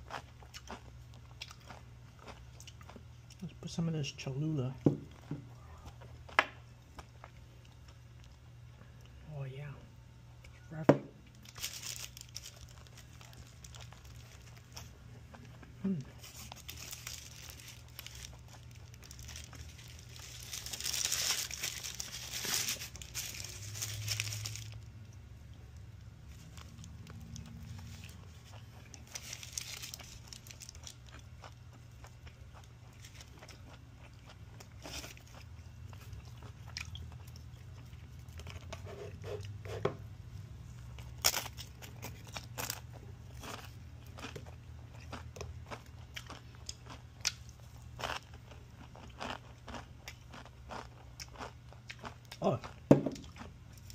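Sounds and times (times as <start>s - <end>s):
person chewing: 0.0s - 3.4s, 11.5s - 39.9s, 40.8s - 53.9s
tortilla chips crunching: 0.0s - 3.5s, 11.3s - 39.6s, 40.8s - 53.9s
paper wrapper crinkling: 11.3s - 14.9s, 16.2s - 24.9s, 26.3s - 31.1s.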